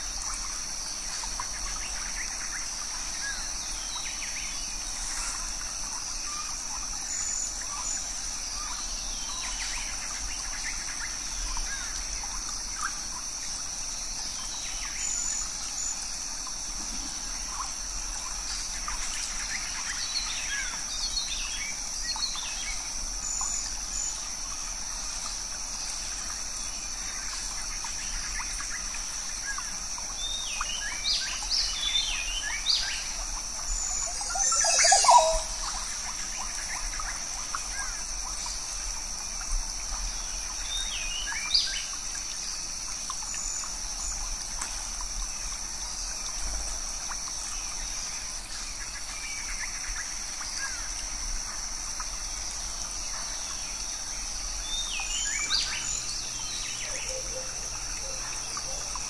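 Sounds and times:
running water: 0:00.0 - 0:59.0
high-pitched insect drone: 0:31.6 - 0:40.1
bird chirps and calls: 0:34.0 - 0:35.5.

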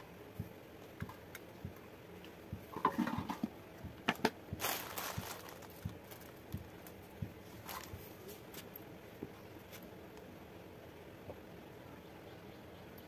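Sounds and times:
rustling: 0:04.5 - 0:09.9.

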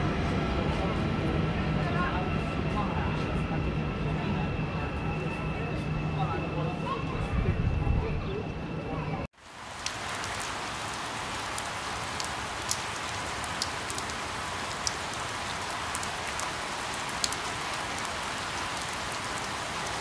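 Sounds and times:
rain falling on leaves: 0:09.4 - 0:20.0
sharp ticks of raindrops: 0:09.4 - 0:20.0.

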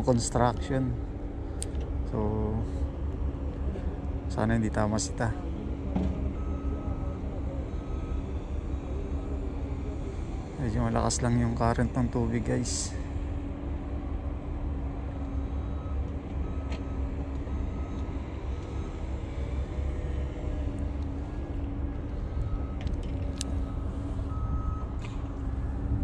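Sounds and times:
heavy vehicle engines rumbling: 0:00.0 - 0:26.0
reversing alarm beeps: 0:04.7 - 0:11.8, 0:14.4 - 0:26.0.

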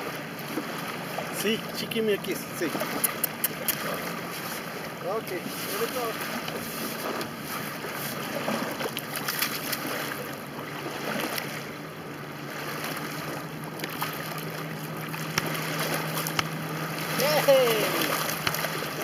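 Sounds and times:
small waves lapping at shore: 0:00.0 - 0:19.0
wind: 0:00.0 - 0:19.0
hands splashing in water: 0:13.8 - 0:19.0.

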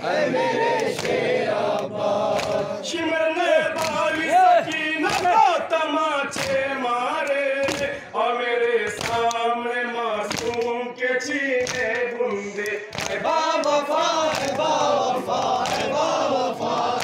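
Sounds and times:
men chanting in unison: 0:00.0 - 0:17.0
chest-beating slaps: 0:11.6 - 0:14.6, 0:15.4 - 0:16.0.

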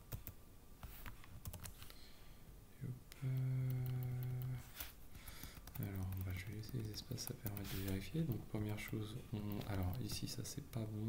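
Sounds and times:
steady low hum: 0:00.0 - 0:11.0
keyboard keystrokes clicking: 0:05.4 - 0:10.8.

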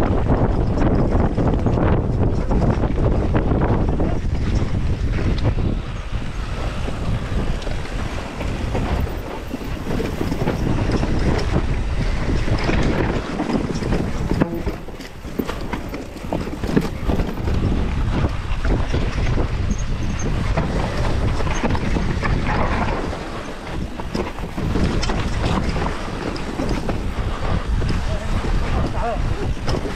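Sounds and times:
wind buffeting microphone: 0:00.0 - 0:29.9
bike tyre noise: 0:00.1 - 0:29.9
bike knocks and rattles: 0:07.0 - 0:29.9.

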